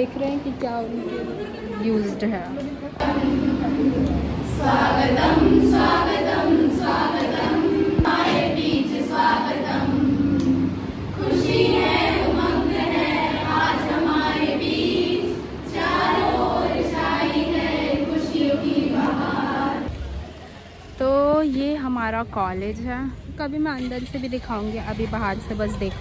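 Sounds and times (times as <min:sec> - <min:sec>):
group of voices singing: 0:02.9 - 0:20.0.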